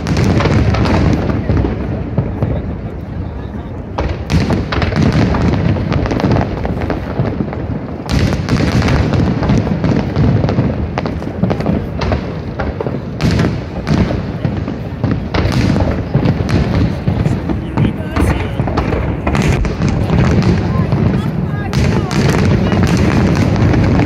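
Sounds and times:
fireworks booming: 0.0 - 24.0
fireworks crackling: 0.0 - 24.0.

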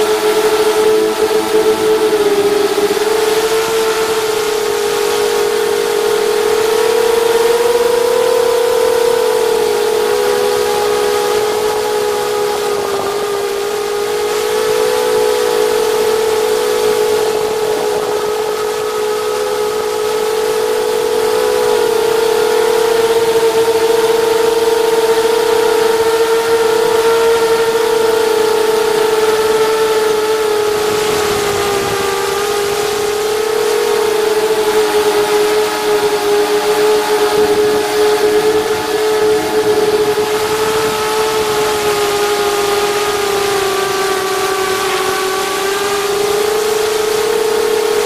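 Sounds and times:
drone propellers whining: 0.0 - 48.0.

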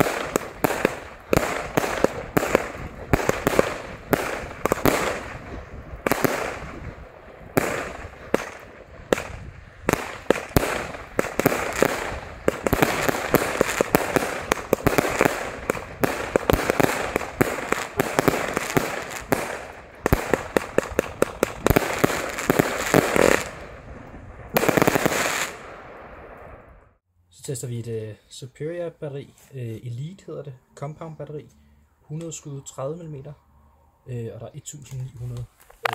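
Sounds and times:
fireworks firing sharp bangs: 0.0 - 26.8.

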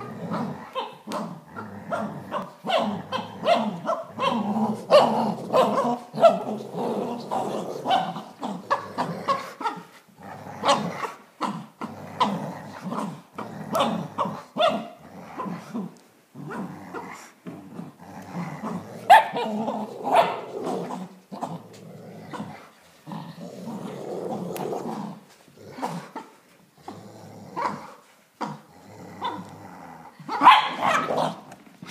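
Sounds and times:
dogs growling: 0.0 - 31.9
dogs barking: 19.1 - 20.5, 30.4 - 31.4.

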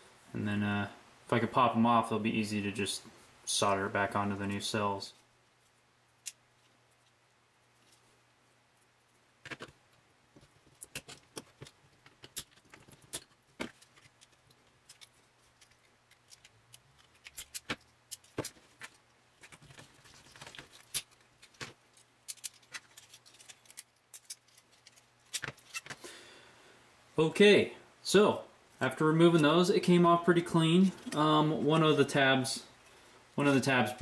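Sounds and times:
battery cells clinking: 10.7 - 26.0.

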